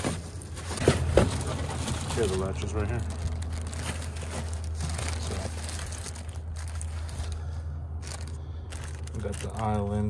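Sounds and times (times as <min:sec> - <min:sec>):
packaging crinkling and rustling: 0:00.0 - 0:10.0.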